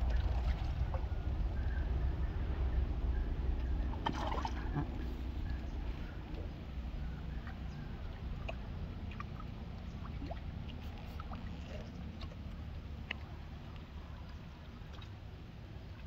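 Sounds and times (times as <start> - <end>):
low wind rumble on microphone: 0.0 - 16.0
trickling creek water: 0.0 - 16.0
small ticks and drips: 7.4 - 16.0.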